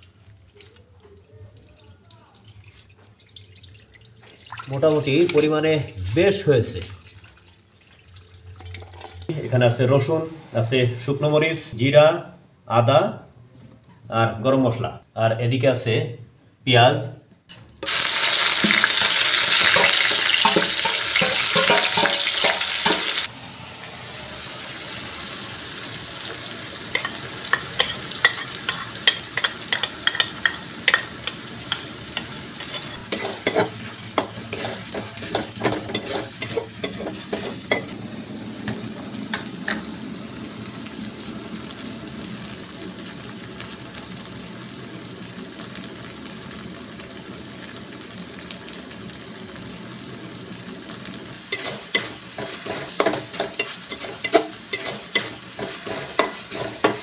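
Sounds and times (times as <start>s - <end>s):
metal spatula scraping a wok: 17.5s - 23.3s, 26.9s - 38.0s, 51.5s - 57.0s
onions sizzling in hot oil: 17.8s - 57.0s.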